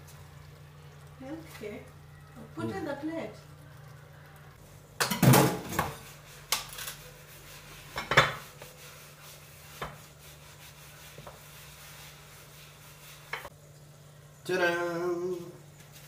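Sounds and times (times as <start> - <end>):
crockery clattering on counter: 8.0 - 8.4.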